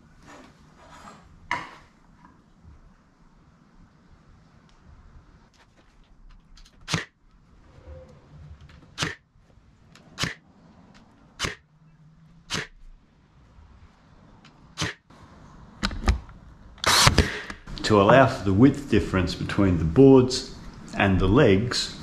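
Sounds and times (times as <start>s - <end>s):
nail gun firing into wood: 6.9s - 7.1s, 9.0s - 9.2s, 10.2s - 10.4s, 11.4s - 11.6s, 12.5s - 12.8s, 14.8s - 15.0s, 16.8s - 17.6s.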